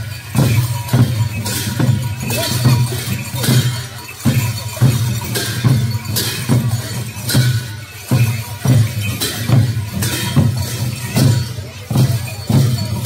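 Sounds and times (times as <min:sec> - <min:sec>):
drums playing a driving beat: 0:00.0 - 0:13.0.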